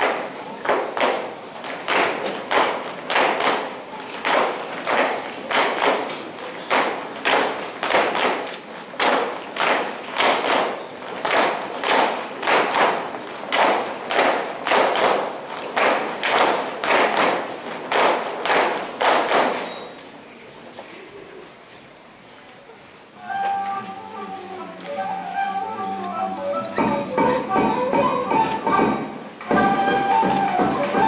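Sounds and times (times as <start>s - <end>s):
dancers stamping on hard floor: 0.0s - 19.6s, 26.8s - 31.0s.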